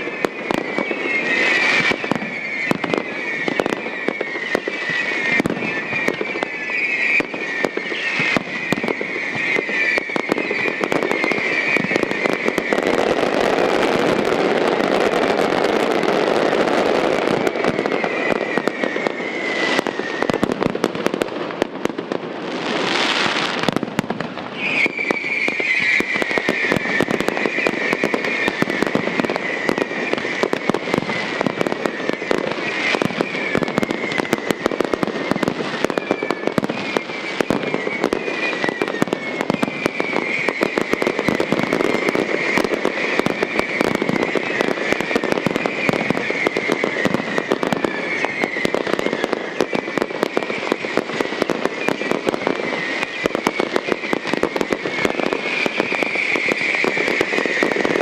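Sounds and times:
high wavering whistling tone: 0:00.0 - 0:20.6, 0:24.5 - 0:58.0
fireworks crackling and popping: 0:00.0 - 0:58.0.

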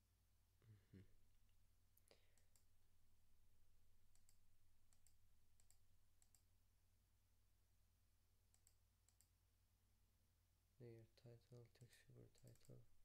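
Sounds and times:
computer mouse clicks: 0:04.1 - 0:06.5, 0:08.5 - 0:09.3, 0:11.8 - 0:12.8.

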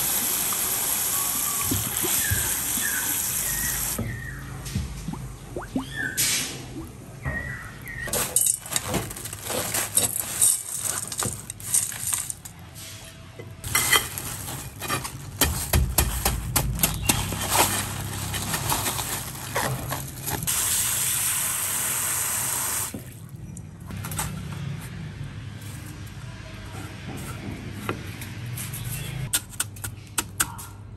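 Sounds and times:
crushed ice pouring onto plate: 0:08.1 - 0:12.5.

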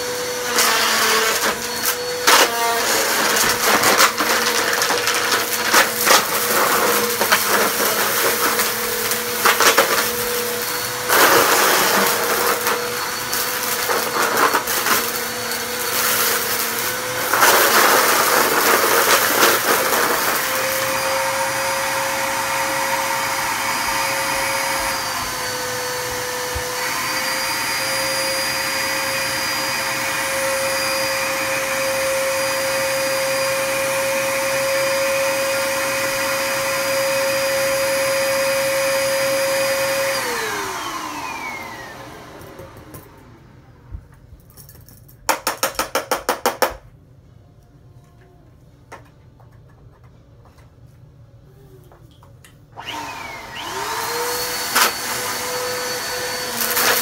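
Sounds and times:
vacuum cleaner motor whine: 0:00.0 - 0:43.8, 0:52.7 - 0:57.0
debris rattling through vacuum: 0:01.3 - 0:21.3.

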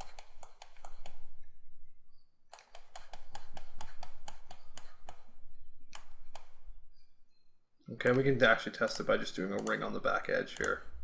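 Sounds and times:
mouse and keyboard clicks: 0:00.0 - 0:01.3, 0:02.5 - 0:06.7, 0:09.3 - 0:11.0.

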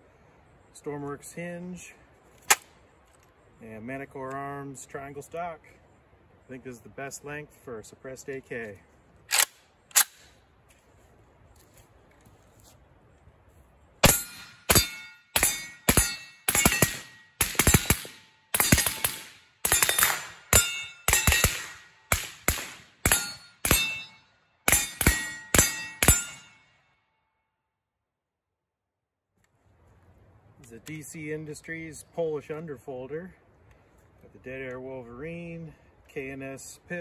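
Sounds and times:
steel targets ringing: 0:14.0 - 0:22.3, 0:23.0 - 0:26.9
suppressed rifle shots: 0:14.0 - 0:24.0
rifle metallic clacks: 0:14.0 - 0:26.7.

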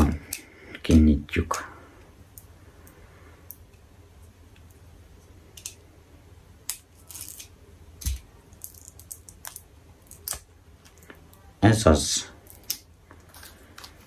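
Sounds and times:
plastic packaging clicks and crinkles: 0:06.7 - 0:11.4, 0:12.4 - 0:14.0.

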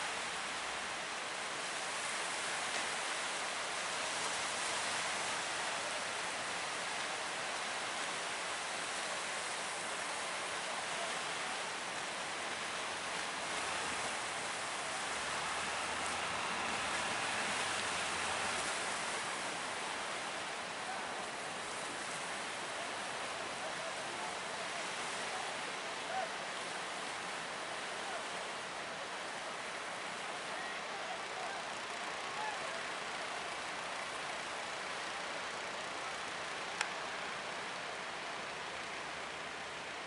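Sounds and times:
surf and rushing water: 0:00.0 - 0:40.0.

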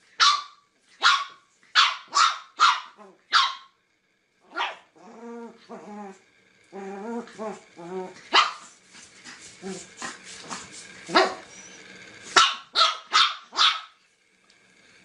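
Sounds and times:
puppy yapping: 0:00.2 - 0:03.7, 0:04.5 - 0:04.9, 0:08.3 - 0:08.7, 0:12.4 - 0:14.0.

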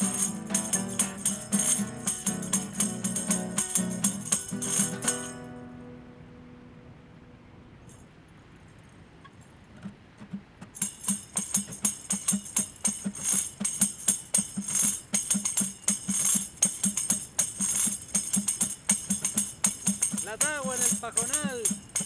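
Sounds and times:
tambourine rhythm: 0:00.0 - 0:05.6, 0:10.8 - 0:22.0
acoustic guitar strumming: 0:00.0 - 0:07.6, 0:09.8 - 0:22.0.

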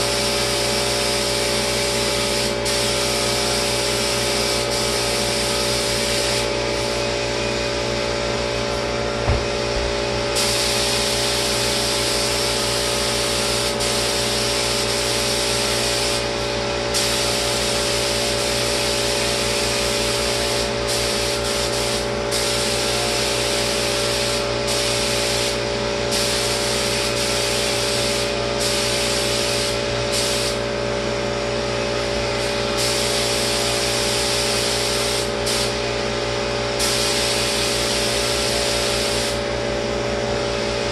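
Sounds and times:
spray gun hissing: 0:00.0 - 0:07.0, 0:09.4 - 0:30.7, 0:32.3 - 0:35.8, 0:36.8 - 0:39.4
steady motor hum: 0:00.0 - 0:40.9
short knock: 0:09.2 - 0:09.9.

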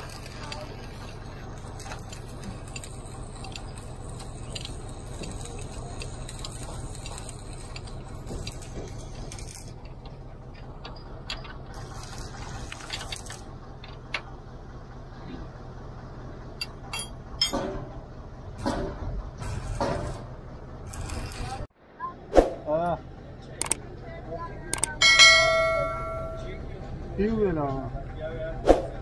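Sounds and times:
steady low hum: 0:00.0 - 0:29.0
spanner clinking on metal bolts: 0:16.6 - 0:18.0.

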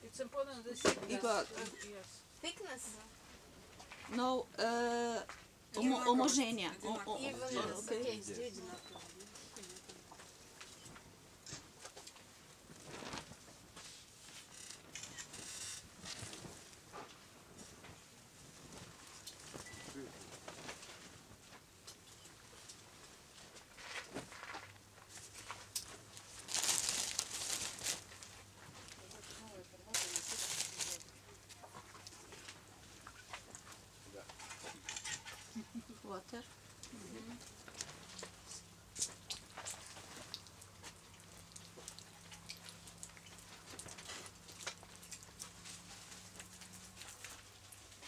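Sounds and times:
bag rustling: 0:25.2 - 0:28.3, 0:29.9 - 0:31.1.

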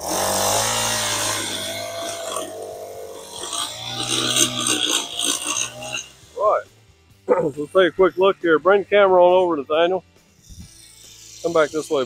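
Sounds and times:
edger blade scraping sidewalk: 0:00.0 - 0:06.3
small gas engine running: 0:00.0 - 0:06.6.

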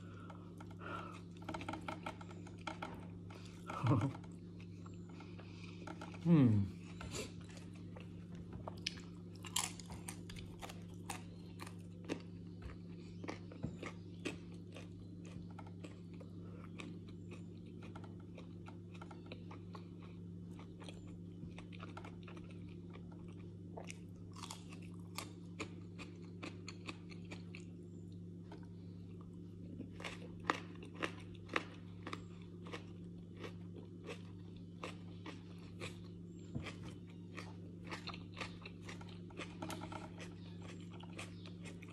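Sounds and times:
steady low hum: 0:00.0 - 0:41.9
crunching flatbread: 0:07.0 - 0:27.8.

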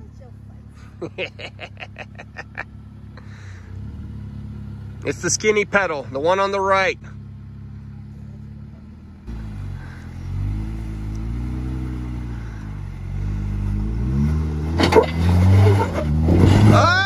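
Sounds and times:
car engine revving: 0:00.0 - 0:17.0.

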